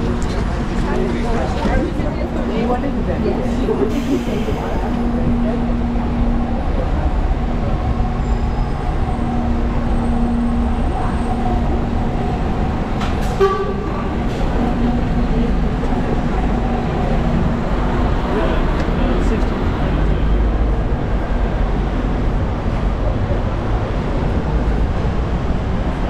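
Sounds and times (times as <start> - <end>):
street traffic: 0.0 - 26.0
truck diesel engine rumbling: 0.0 - 26.0.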